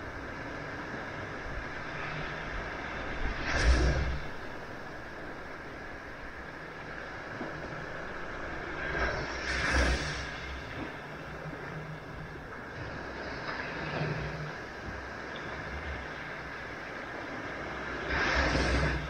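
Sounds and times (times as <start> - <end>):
surf washing on beach: 0.0 - 19.0
wave breaking: 1.7 - 15.1, 17.8 - 19.0.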